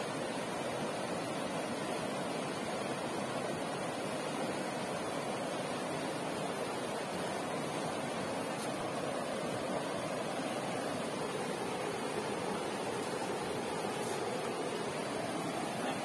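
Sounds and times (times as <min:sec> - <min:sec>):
river rapids rushing over rocks: 0:00.0 - 0:16.0.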